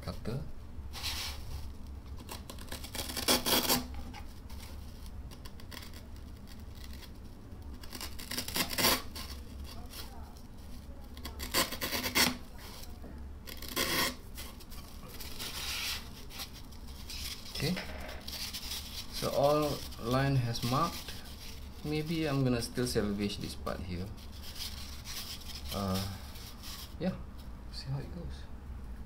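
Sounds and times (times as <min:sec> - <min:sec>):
utility knife cutting foam: 0:02.3 - 0:03.9, 0:07.9 - 0:09.3, 0:11.2 - 0:12.4, 0:13.5 - 0:14.2.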